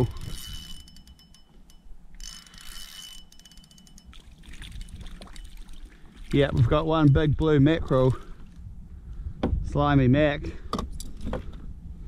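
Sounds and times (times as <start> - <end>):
fishing reel clicking: 0.0 - 4.3.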